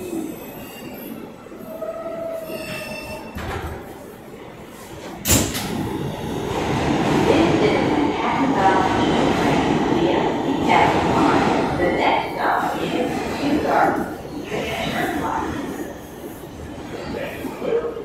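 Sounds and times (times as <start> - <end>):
train wheels squealing: 0.2 - 3.4.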